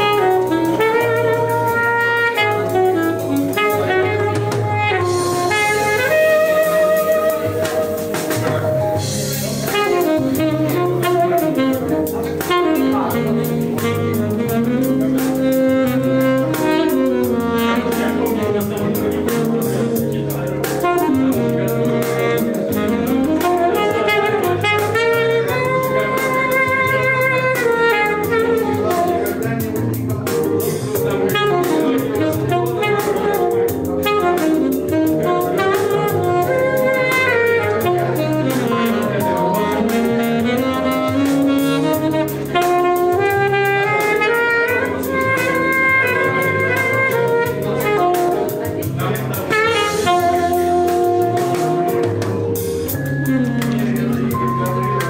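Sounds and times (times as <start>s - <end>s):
alto saxophone jazz melody: 0.0s - 55.0s
repeating bass line: 49.8s - 55.0s.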